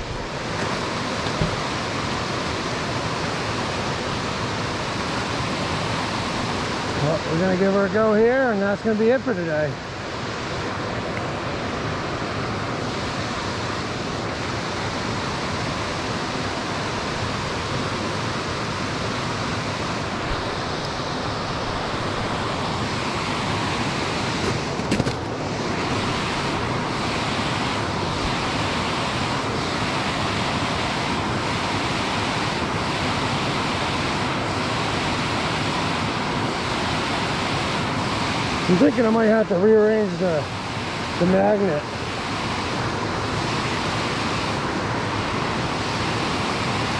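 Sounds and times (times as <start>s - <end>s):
water rushing over spillway: 0.0s - 46.9s.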